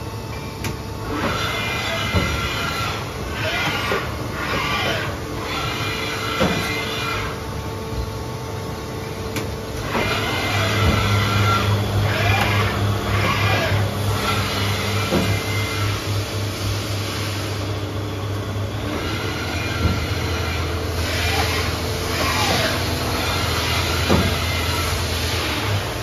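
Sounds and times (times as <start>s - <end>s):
lathe motor hum: 1.0s - 26.0s
machine knocks: 19.7s - 20.2s, 24.0s - 24.6s.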